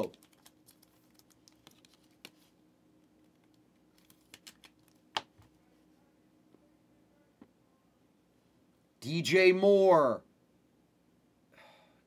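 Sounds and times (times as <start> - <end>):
trading cards clicking and tapping: 4.0 - 5.4.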